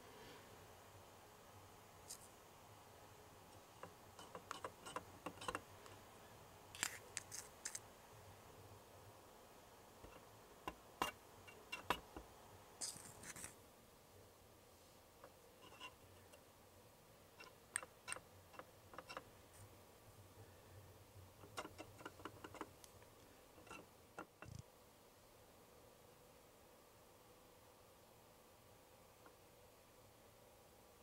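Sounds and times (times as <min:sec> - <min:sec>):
scratchy rustle: 0:06.8 - 0:07.8, 0:12.8 - 0:13.6.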